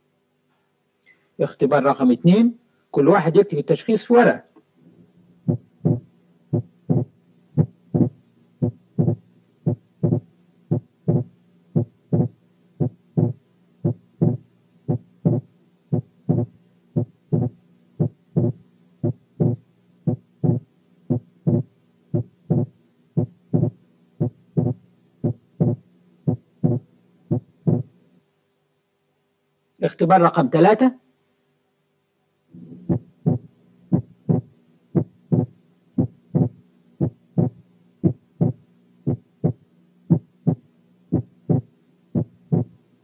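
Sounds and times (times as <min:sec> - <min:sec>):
faint steady hum: 0:00.0 - 0:43.0
heartbeat: 0:05.5 - 0:27.9, 0:32.6 - 0:42.8.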